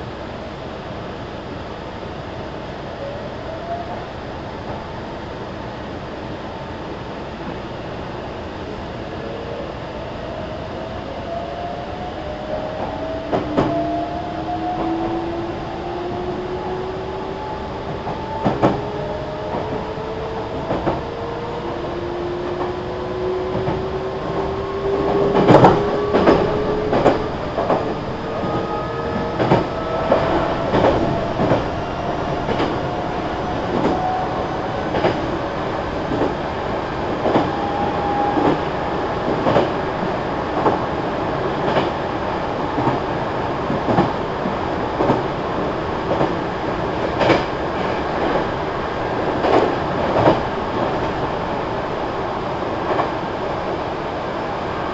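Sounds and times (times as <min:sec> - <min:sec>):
electric train motors whining: 0:12.2 - 0:40.1.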